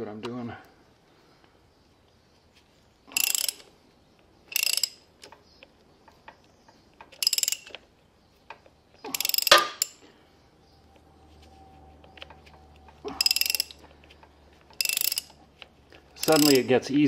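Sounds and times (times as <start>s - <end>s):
socket ratchet clicking: 3.1s - 3.7s, 4.5s - 6.4s, 7.0s - 7.8s, 8.5s - 10.0s, 12.2s - 16.7s.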